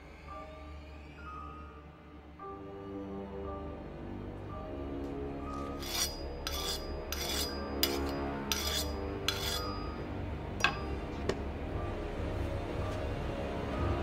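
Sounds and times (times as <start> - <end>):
low music drone: 0.0 - 14.0
knife blade scraping: 5.6 - 11.0.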